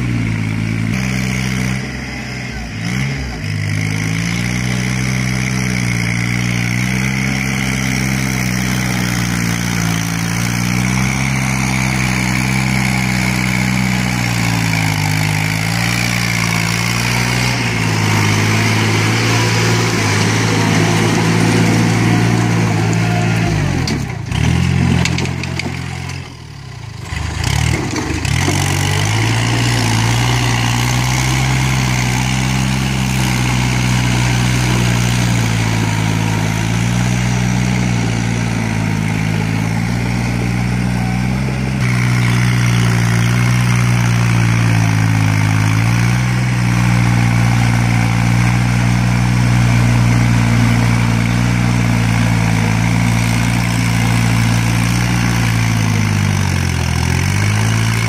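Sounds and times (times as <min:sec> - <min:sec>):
rotary tiller churning mud: 0:00.0 - 0:58.0
tractor diesel engine running: 0:00.0 - 0:58.0.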